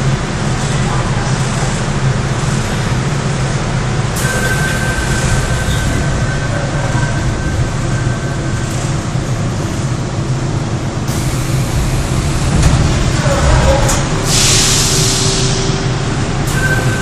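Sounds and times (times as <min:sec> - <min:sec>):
subway car equipment hum: 0:00.0 - 0:17.0
high warning tone: 0:04.2 - 0:09.5, 0:14.9 - 0:17.0.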